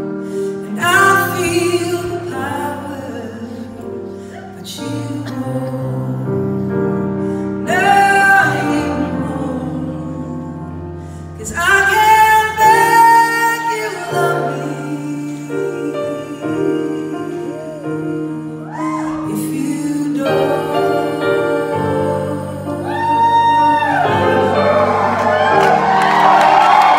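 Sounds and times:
crowd cheering: 22.8 - 26.9.

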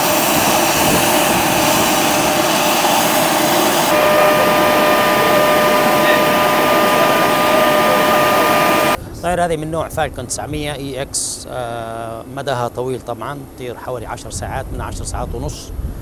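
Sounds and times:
jet engine hiss: 0.0 - 9.0
jet engine whine: 0.0 - 9.0.

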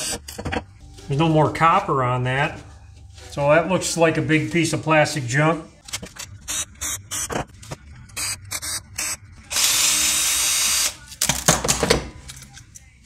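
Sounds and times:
cordless drill whirring: 9.5 - 11.0.

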